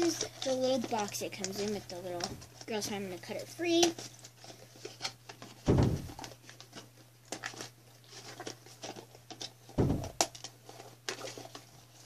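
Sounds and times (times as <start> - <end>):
packaging crinkling and tearing: 0.0 - 2.9, 3.8 - 12.0
dull heavy thumps: 5.7 - 6.3, 9.8 - 10.3.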